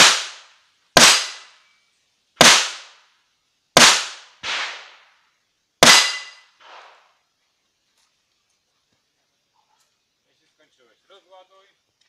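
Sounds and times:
gunshots with echo: 3.8s - 5.0s.

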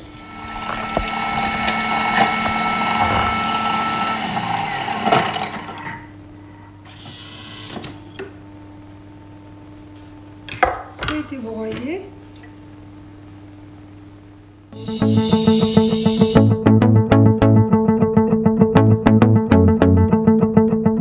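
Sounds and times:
electric blender grinding biscuits: 0.1s - 6.0s.

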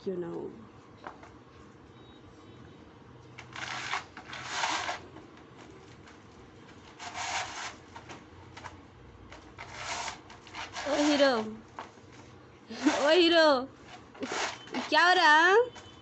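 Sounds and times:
puppy scratching doormat: 3.5s - 16.0s.

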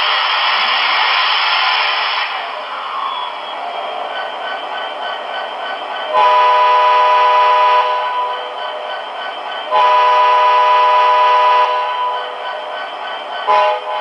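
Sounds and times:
model train chord horn blasts: 6.1s - 8.4s, 9.7s - 12.3s, 13.5s - 14.0s.

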